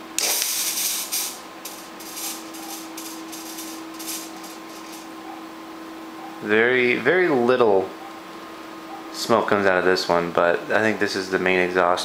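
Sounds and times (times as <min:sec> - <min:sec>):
steady low hum: 0:00.0 - 0:12.0
fog machine hissing: 0:00.2 - 0:05.1.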